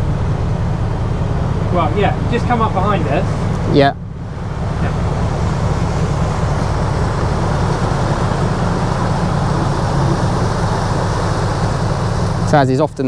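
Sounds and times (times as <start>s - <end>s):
wind buffeting microphone: 4.2s - 12.6s.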